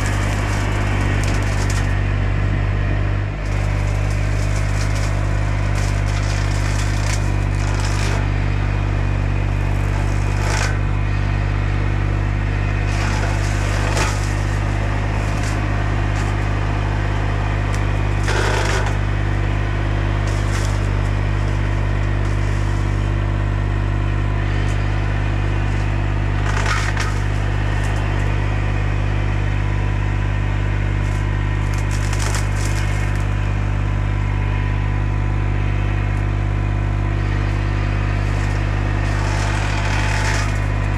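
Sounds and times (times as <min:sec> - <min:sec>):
wood cracking: 0:00.0 - 0:02.0, 0:03.4 - 0:11.0, 0:12.8 - 0:28.7, 0:30.9 - 0:33.6, 0:38.2 - 0:40.9
diesel engine at high revs: 0:00.0 - 0:40.9
mower head shredding tree limbs: 0:00.0 - 0:40.9.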